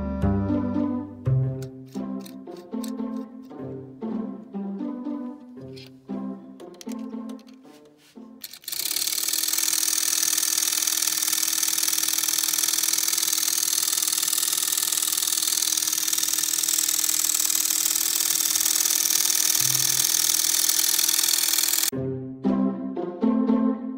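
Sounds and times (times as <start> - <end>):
electric motor whirring: 8.4 - 21.9.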